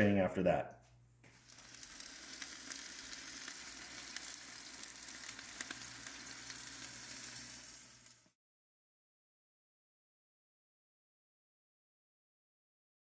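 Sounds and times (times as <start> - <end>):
fat sizzling and bubbling: 1.2 - 8.4.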